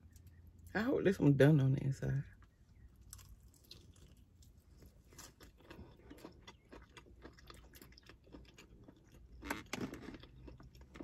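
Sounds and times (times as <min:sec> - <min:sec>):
crunching fried chicken breading: 0:02.4 - 0:11.0.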